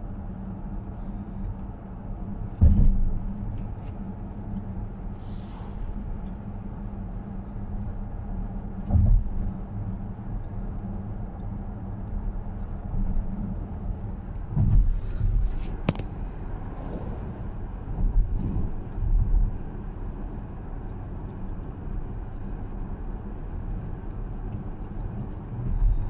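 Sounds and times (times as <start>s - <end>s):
car engine and tyre rumble: 0.0s - 26.0s.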